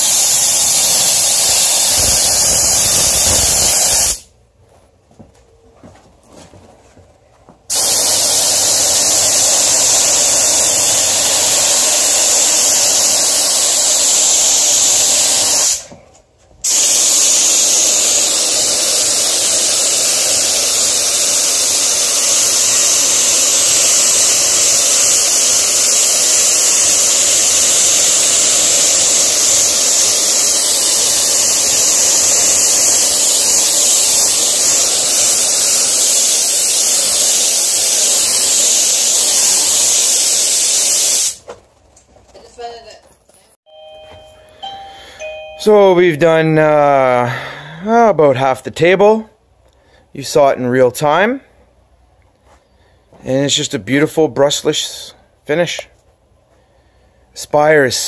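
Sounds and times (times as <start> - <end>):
spray gun hissing: 0.0 - 4.3, 7.7 - 15.9, 16.6 - 41.4.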